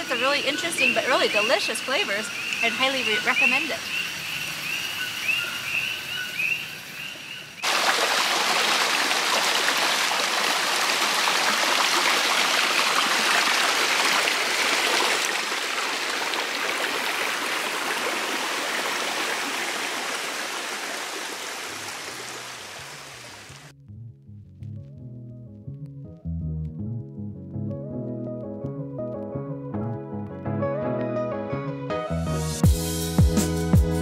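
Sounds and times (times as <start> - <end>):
stream running over stones: 0.0 - 6.9, 7.6 - 23.7.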